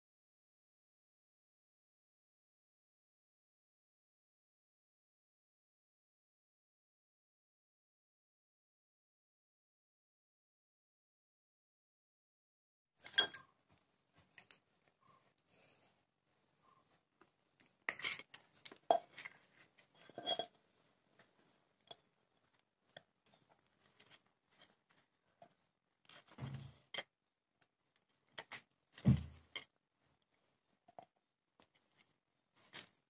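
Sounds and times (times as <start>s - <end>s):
kitchen utensils and dishes clinking: 13.0s - 13.5s, 20.0s - 20.5s
dull thuds: 26.4s - 26.8s, 29.0s - 29.5s.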